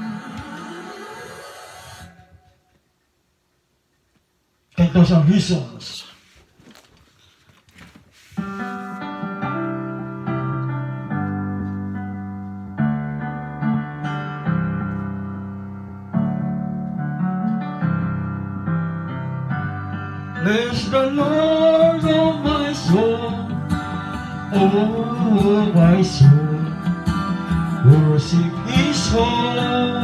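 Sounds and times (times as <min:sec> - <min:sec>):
piano chords: 0:08.4 - 0:30.0.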